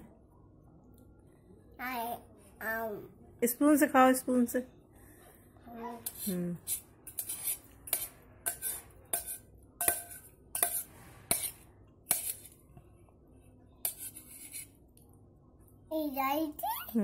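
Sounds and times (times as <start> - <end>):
spoon clinking against bowl: 7.1 - 11.5.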